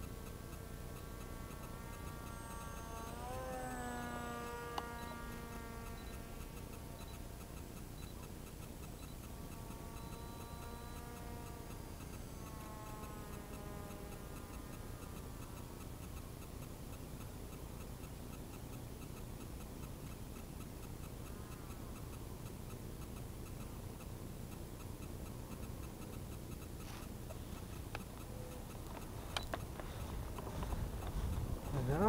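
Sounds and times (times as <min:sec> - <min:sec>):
faint high whine: 0:00.0 - 0:32.0
sharp clicks: 0:00.0 - 0:32.0
wind rumble on microphone: 0:30.0 - 0:32.0.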